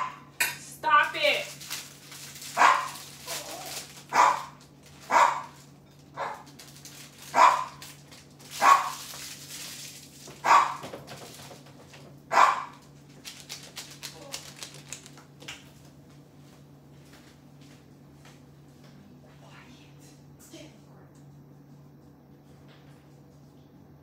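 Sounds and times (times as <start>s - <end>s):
dog barking: 2.6s - 3.0s, 4.1s - 5.6s, 6.2s - 6.5s, 7.3s - 7.8s, 8.6s - 9.0s, 10.4s - 10.8s, 12.3s - 12.8s.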